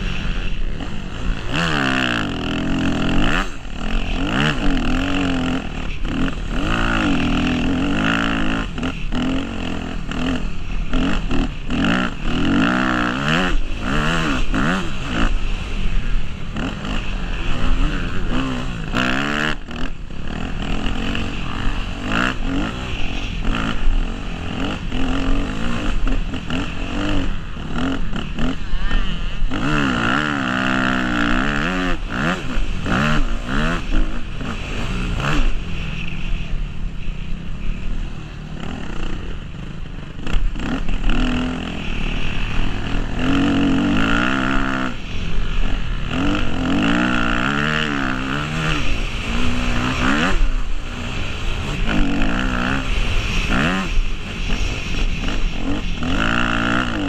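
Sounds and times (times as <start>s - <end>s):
motocross bike engine revving: 0.0s - 57.0s.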